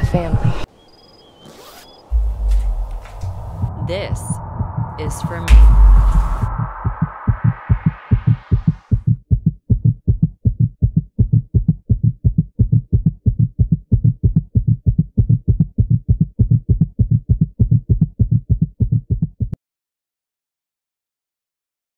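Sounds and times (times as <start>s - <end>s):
fast heartbeat: 2.1s - 19.6s.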